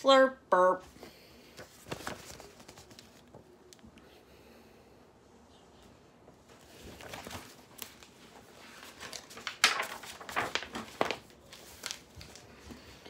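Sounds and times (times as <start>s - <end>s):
paper pages rustling: 0.9s - 3.5s, 6.5s - 13.0s
page flapping: 1.6s - 3.5s, 6.5s - 12.8s.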